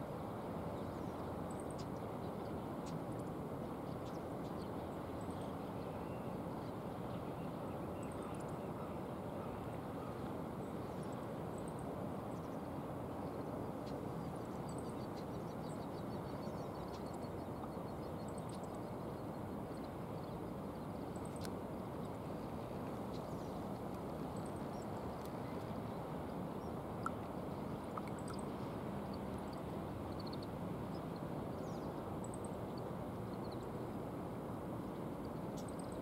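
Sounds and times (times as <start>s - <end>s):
small ticking calls: 1.5s - 5.4s, 13.3s - 22.2s, 26.5s - 33.7s, 35.2s - 36.0s
faint high chirps: 26.6s - 33.7s.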